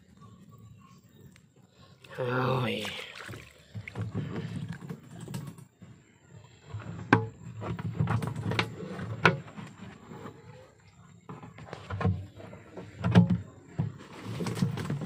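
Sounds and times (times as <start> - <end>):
handling noise on plastic container: 6.8 - 15.0.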